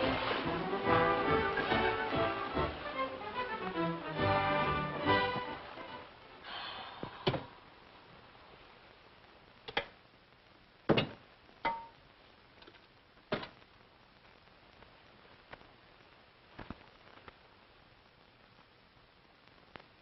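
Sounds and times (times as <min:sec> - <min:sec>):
music: 0:00.0 - 0:06.5.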